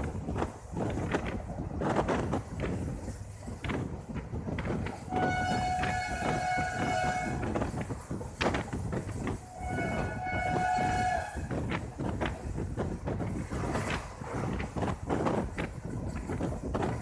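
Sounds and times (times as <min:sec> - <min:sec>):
train wheels rumbling on rails: 0:00.0 - 0:17.0
locomotive horn blasts: 0:05.1 - 0:07.7, 0:09.4 - 0:11.5.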